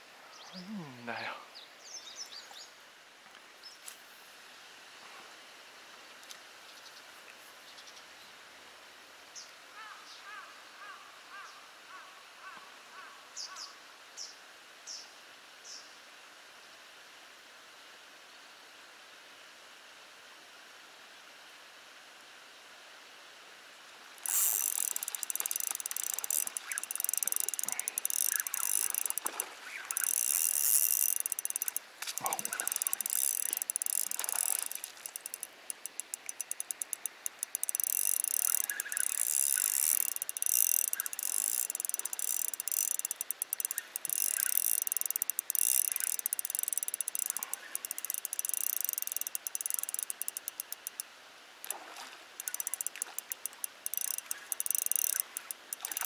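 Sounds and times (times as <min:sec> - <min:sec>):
fishing reel clicking: 0:24.2 - 0:51.0, 0:52.4 - 0:56.0.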